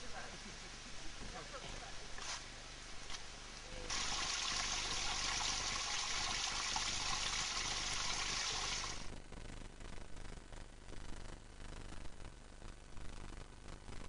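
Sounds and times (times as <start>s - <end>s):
water splashing into a rocky pool: 3.9s - 9.1s.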